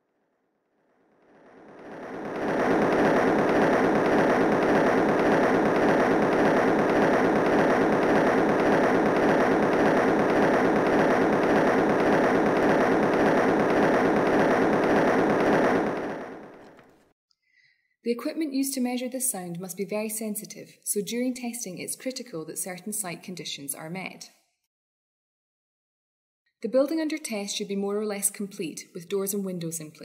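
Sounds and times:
tapping machine hammering floor: 0:01.7 - 0:16.9.

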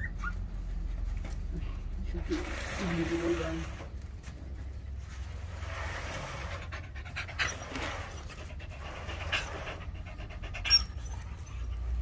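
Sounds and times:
dog panting: 0:06.5 - 0:12.0.

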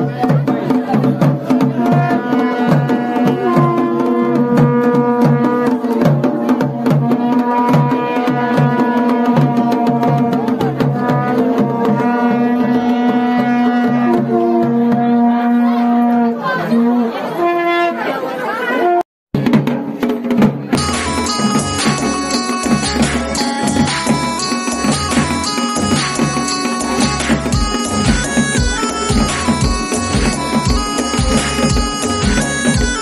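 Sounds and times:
drum beat: 0:00.0 - 0:15.4, 0:19.4 - 0:33.0
melody over drone: 0:20.8 - 0:33.0.

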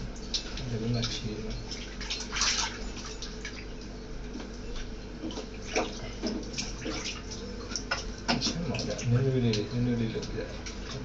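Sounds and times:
bath water splashing: 0:00.0 - 0:03.7, 0:04.8 - 0:09.6.

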